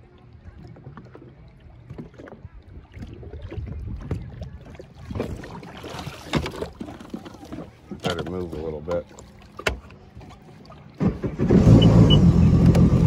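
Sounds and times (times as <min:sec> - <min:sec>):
lake water lapping and splashing: 0:00.0 - 0:13.0
wind rumbling on microphone: 0:00.4 - 0:05.8.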